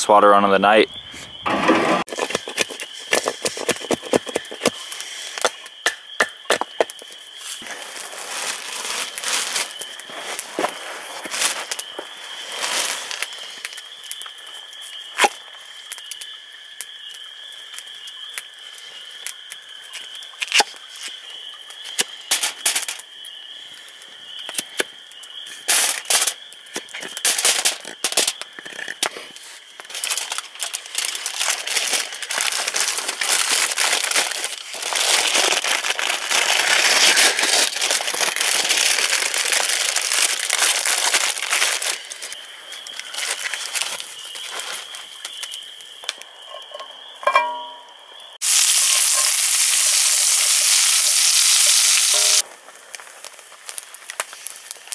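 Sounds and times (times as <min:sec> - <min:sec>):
aluminium foil crinkling: 0:02.0 - 0:05.6, 0:06.6 - 0:14.4, 0:25.6 - 0:46.2, 0:48.4 - 0:54.9
crackling campfire: 0:02.0 - 0:54.9.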